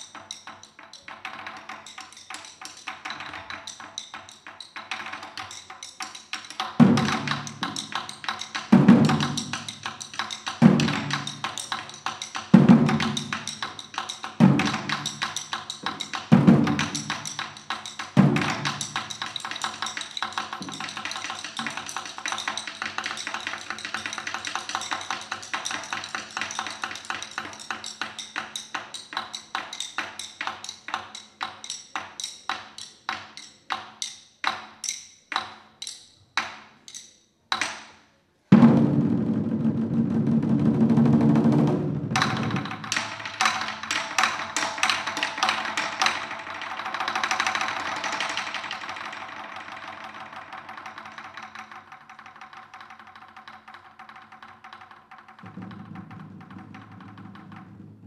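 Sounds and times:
fast light drum tapping: 0:00.0 - 0:32.5, 0:40.6 - 0:58.0
small hand cymbals ringing: 0:00.0 - 0:36.3
deep heavy drum strokes: 0:55.4 - 0:58.0.

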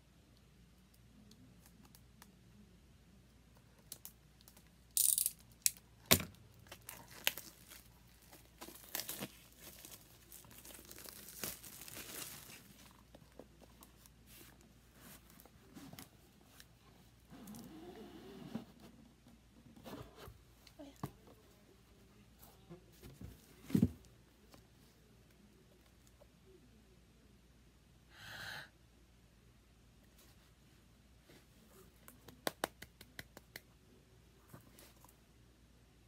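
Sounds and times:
plastic wrap crinkling: 0:06.4 - 0:13.3
plastic shrink wrap tearing: 0:06.6 - 0:12.8.

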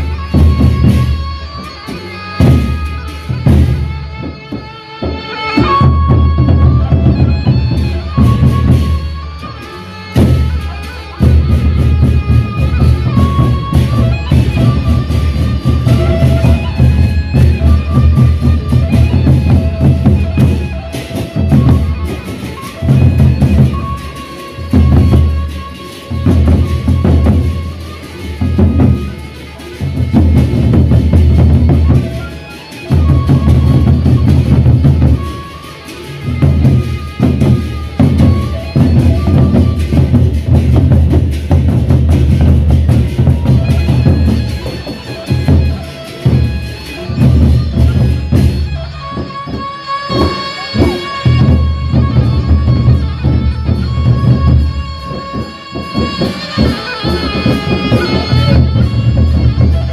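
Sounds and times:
barrel drums beating fast: 0:00.0 - 0:09.3, 0:10.2 - 0:59.9
held melodic line: 0:00.0 - 0:59.9.

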